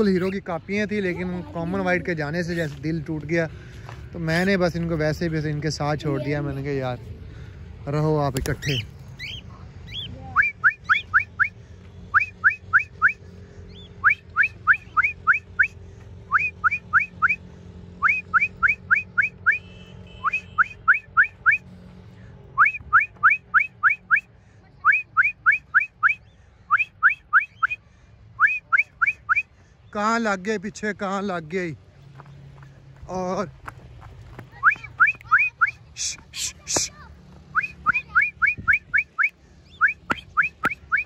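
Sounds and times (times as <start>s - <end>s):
person whistling rising notes: 22.6s - 24.3s, 28.4s - 29.5s, 37.5s - 41.0s.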